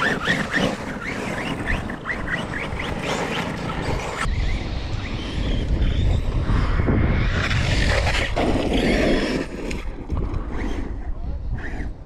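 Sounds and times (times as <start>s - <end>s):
tyres on gravel and dirt: 0.0s - 6.4s
wind rumble on microphone: 0.0s - 12.0s.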